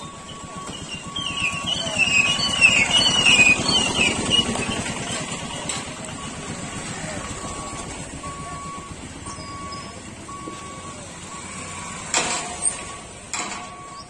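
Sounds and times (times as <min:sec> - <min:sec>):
high wavering squeal: 0:00.0 - 0:06.5
small engine passing by: 0:00.0 - 0:10.4
motorcycle engine running: 0:00.0 - 0:12.1
short electronic beep: 0:07.4 - 0:11.6.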